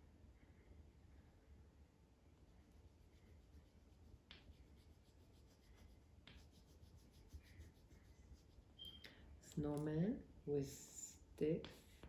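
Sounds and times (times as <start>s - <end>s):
pencil scratching drawing strokes: 2.6s - 8.8s.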